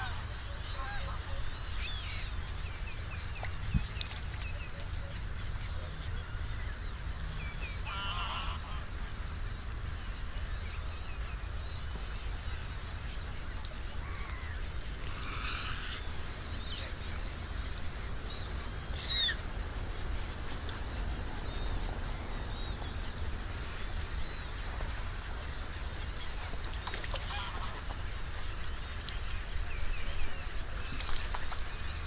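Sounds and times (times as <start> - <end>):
flock of waterbirds calling: 0.0 - 32.0
nearer bird calls: 7.3 - 9.0, 18.3 - 19.4, 25.7 - 32.0.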